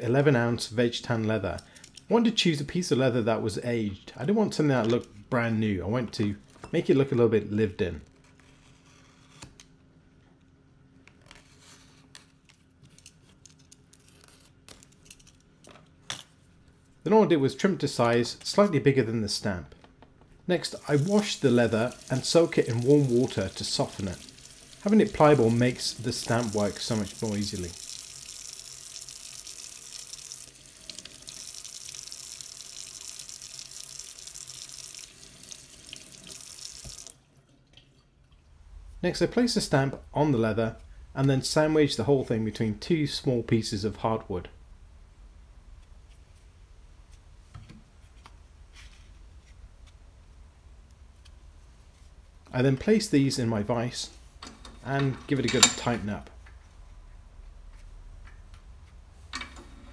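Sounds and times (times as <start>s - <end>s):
low steady hum: 0.0s - 59.9s
tap water running into sink: 20.8s - 37.9s.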